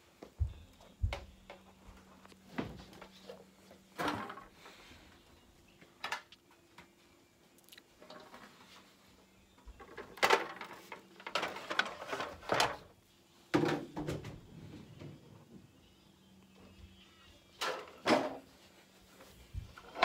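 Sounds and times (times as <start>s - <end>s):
objects knocking and clattering: 9.7s - 12.9s, 13.5s - 14.4s.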